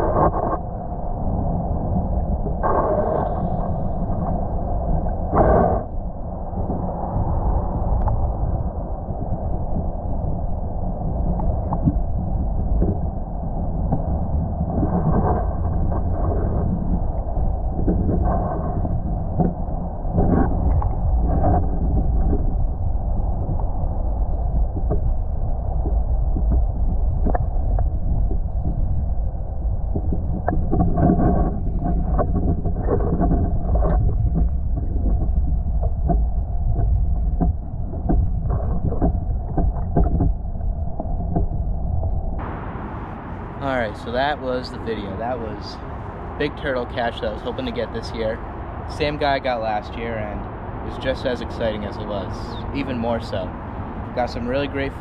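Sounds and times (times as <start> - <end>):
muffled underwater rumble: 0.0 - 55.0.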